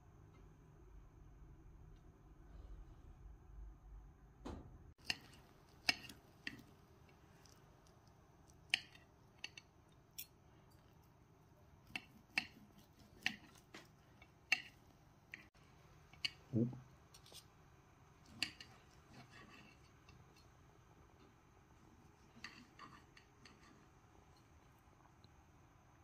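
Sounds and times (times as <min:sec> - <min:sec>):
knife and fork scraping a plate: 0:05.0 - 0:06.7, 0:11.8 - 0:15.5, 0:18.3 - 0:20.4, 0:22.1 - 0:24.5.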